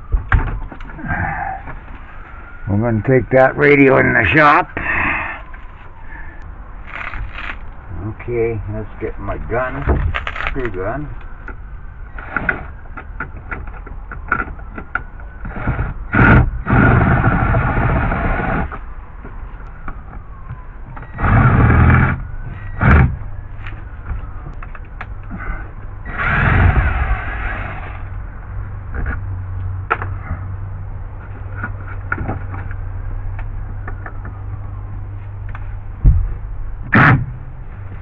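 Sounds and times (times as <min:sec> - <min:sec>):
power drill motor whining: 0:26.1 - 0:27.7.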